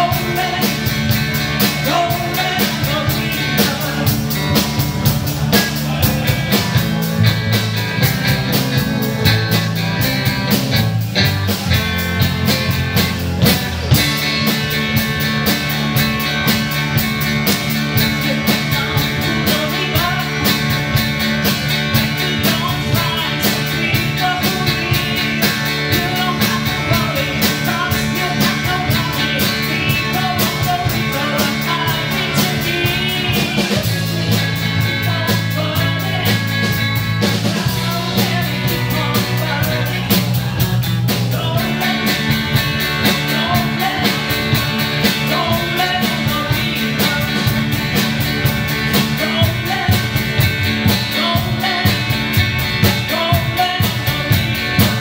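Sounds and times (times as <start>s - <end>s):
bass guitar: 0.0s - 55.0s
drums: 0.0s - 55.0s
electric guitar: 0.0s - 55.0s
keyboard: 0.0s - 55.0s
woman singing lead: 17.8s - 21.1s, 21.9s - 55.0s.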